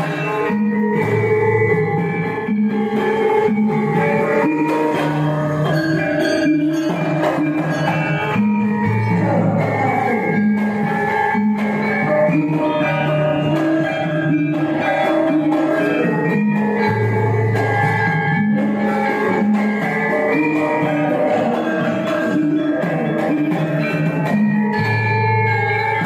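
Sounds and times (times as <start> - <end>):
drum strokes: 0.0 - 26.0
gamelan metallophones ringing: 0.0 - 26.0.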